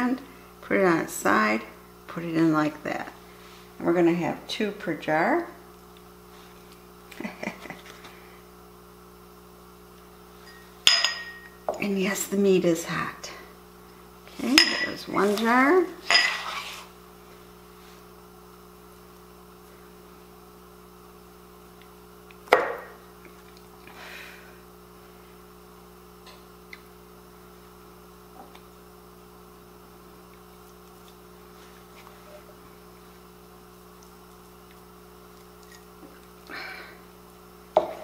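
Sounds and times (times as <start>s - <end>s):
steady low hum: 0.0s - 38.0s
glass clink: 10.4s - 11.8s.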